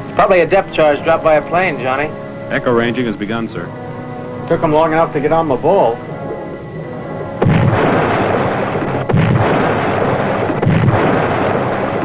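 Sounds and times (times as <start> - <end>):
distant depth charge explosions: 6.0 - 12.0.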